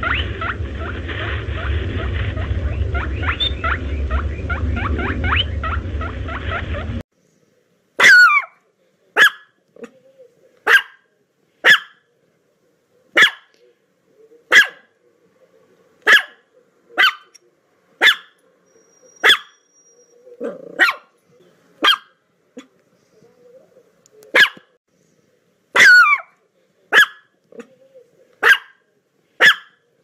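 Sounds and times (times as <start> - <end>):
low outdoor rumble: 0.0 - 8.0
small dog barking: 8.0 - 8.6, 9.2 - 9.9, 10.6 - 11.0, 11.6 - 12.0, 13.2 - 13.6, 14.5 - 14.9, 16.0 - 16.4, 17.0 - 17.3, 18.0 - 18.4, 19.2 - 19.6, 20.4 - 21.1, 21.8 - 22.7, 24.3 - 24.7, 25.8 - 27.7, 28.4 - 28.8, 29.4 - 29.8.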